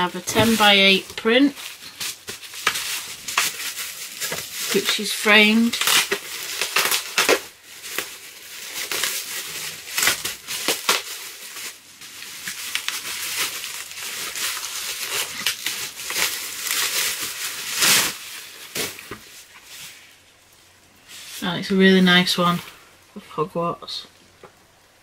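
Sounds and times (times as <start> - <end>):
plastic packaging crinkling: 0.0 - 21.5.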